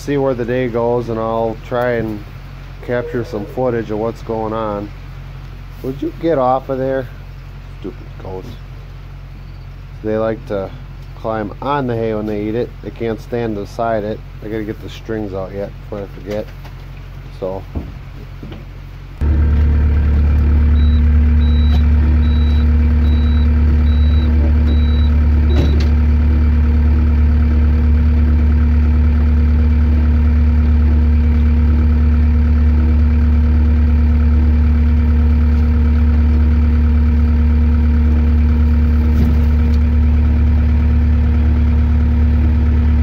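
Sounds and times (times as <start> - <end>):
skid loader engine running: 18.0 - 43.0
high beeps: 20.8 - 25.8.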